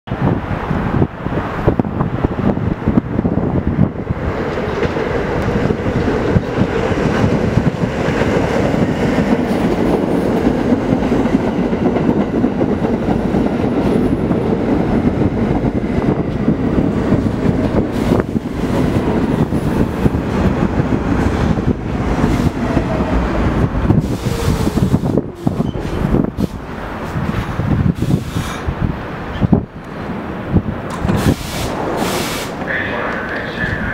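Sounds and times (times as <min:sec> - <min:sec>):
train wheels running on rails: 0:00.2 - 0:33.9
wheels clicking over rail joints: 0:30.8 - 0:33.6.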